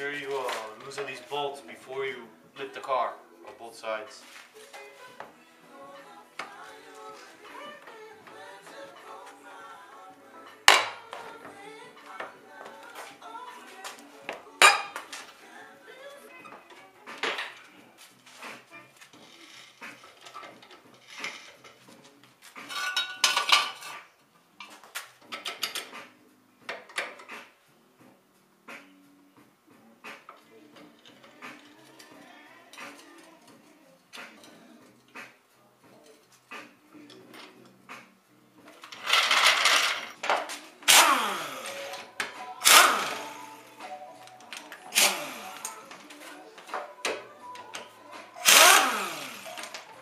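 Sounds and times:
pneumatic impact wrench: 0:40.9 - 0:41.9, 0:42.6 - 0:43.5, 0:44.9 - 0:45.8, 0:48.4 - 0:49.8.

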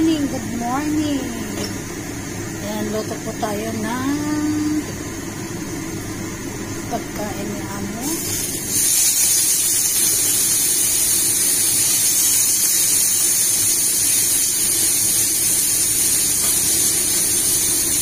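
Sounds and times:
pasta sizzling in oil: 0:08.0 - 0:18.0.

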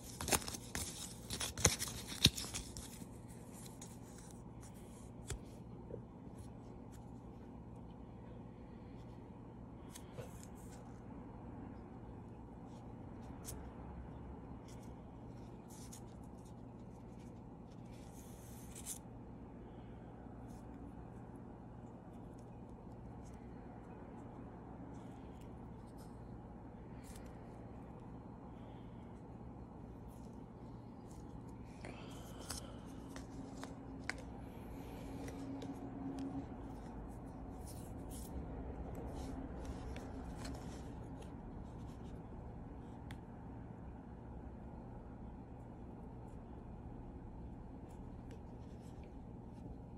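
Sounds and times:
fingers rustling paper card: 0:00.0 - 0:07.3, 0:14.5 - 0:42.3
steady low hum: 0:00.0 - 0:49.9.

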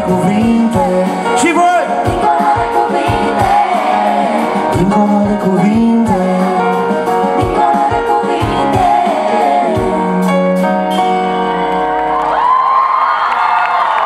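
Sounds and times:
man singing: 0:00.0 - 0:02.5, 0:04.3 - 0:07.8
live pop band: 0:00.0 - 0:14.0
crowd cheering and whooping: 0:11.8 - 0:14.0.

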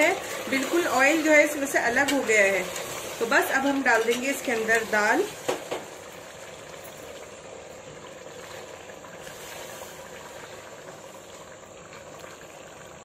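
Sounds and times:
curry bubbling in a pressure cooker: 0:00.0 - 0:13.0.

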